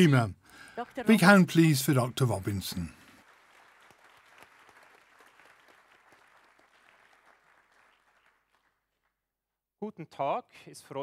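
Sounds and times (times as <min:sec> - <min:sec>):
audience applauding: 0:00.8 - 0:09.2.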